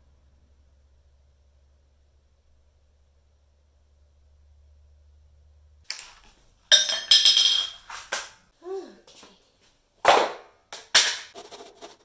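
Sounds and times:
low hum: 0:00.0 - 0:05.8
hammer and nails clattering on tiles: 0:06.7 - 0:08.3, 0:10.8 - 0:11.4.

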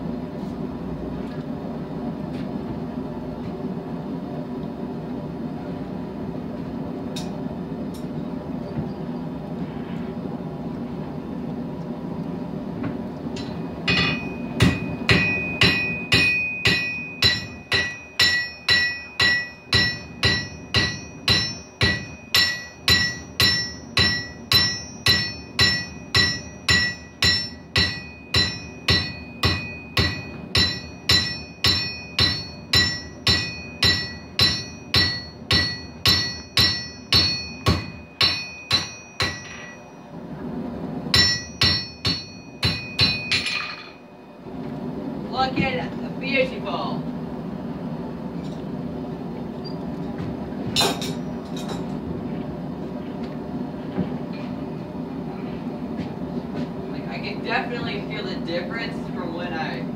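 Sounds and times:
hammer striking steel on anvil: 0:13.4 - 0:40.1, 0:41.1 - 0:44.1, 0:50.8 - 0:52.0.

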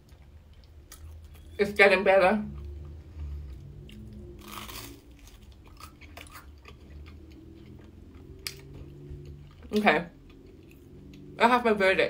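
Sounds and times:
chewing toast: 0:02.6 - 0:11.3
toast crunch: 0:03.9 - 0:11.3.

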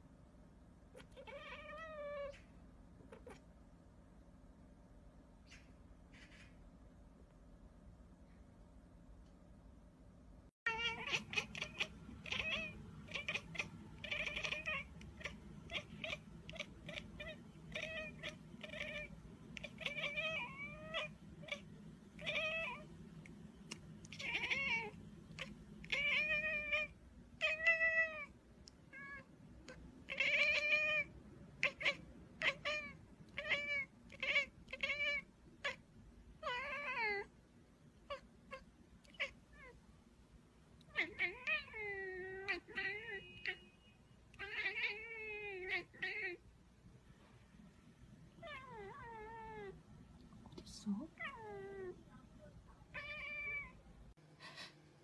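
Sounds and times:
cat meowing: 0:01.0 - 0:02.4, 0:10.7 - 0:22.9, 0:24.0 - 0:28.3, 0:28.9 - 0:35.8, 0:36.4 - 0:37.3, 0:38.0 - 0:39.8, 0:40.8 - 0:43.7, 0:44.3 - 0:46.4, 0:48.4 - 0:49.8, 0:52.9 - 0:53.8.

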